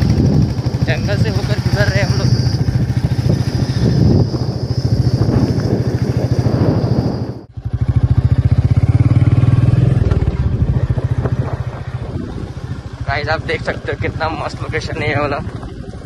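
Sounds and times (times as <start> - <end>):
steady high tone: 0.0 - 7.5
motorcycle engine rumbling: 0.0 - 16.0.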